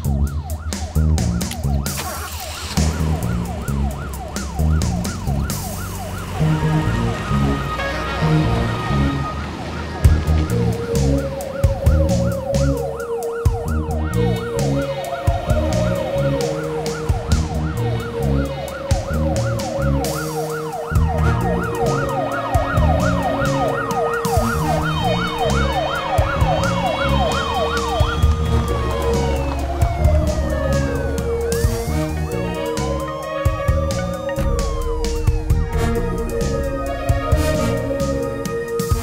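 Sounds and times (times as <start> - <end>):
background music with drum beat: 0.0 - 2.0, 10.0 - 39.0
siren yelping and wailing: 0.0 - 39.0.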